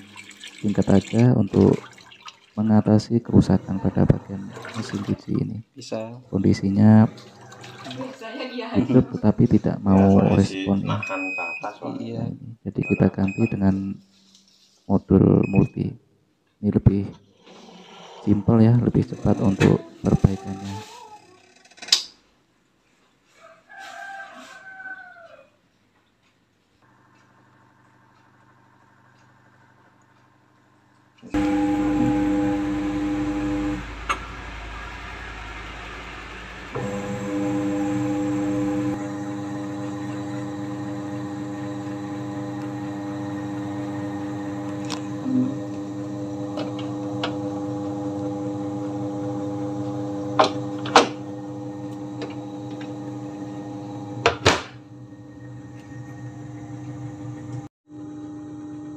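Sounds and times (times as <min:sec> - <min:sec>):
water churning in tub: 0:00.0 - 0:02.8, 0:03.6 - 0:05.3, 0:06.9 - 0:08.3
washing machine motor humming: 0:00.0 - 0:05.6, 0:06.3 - 0:11.7, 0:18.6 - 0:20.7, 0:26.8 - 0:58.9.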